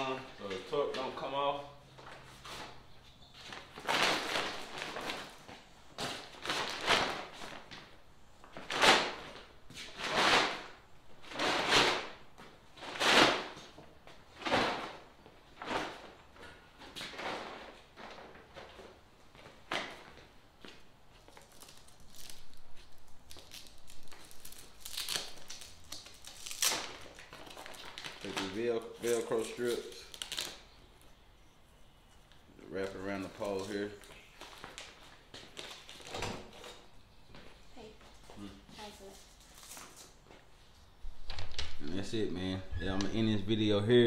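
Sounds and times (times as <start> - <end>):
material ripping: 21.3 - 30.6.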